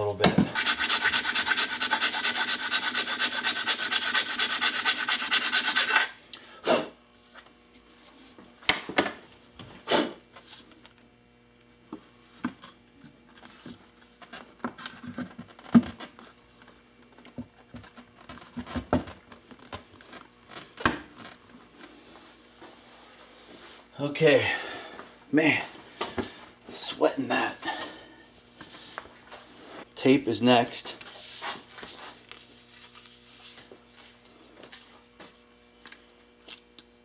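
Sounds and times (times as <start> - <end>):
hand file filing metal: 0.6 - 6.2.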